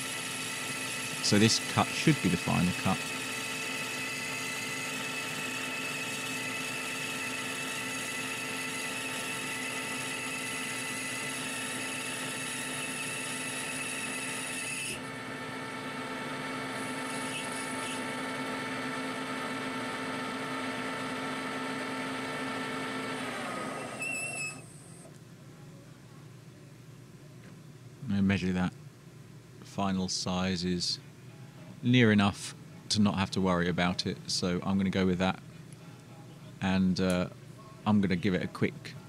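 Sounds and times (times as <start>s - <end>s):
lathe gear whine: 0.0s - 25.1s
lathe spindle running down: 15.0s - 24.7s.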